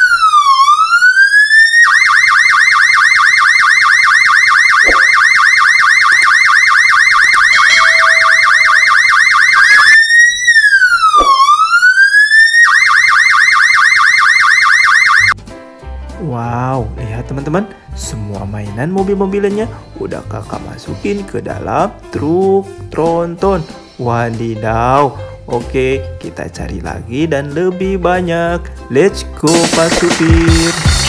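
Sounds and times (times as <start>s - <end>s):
cartoon police siren: 0.0s - 15.4s.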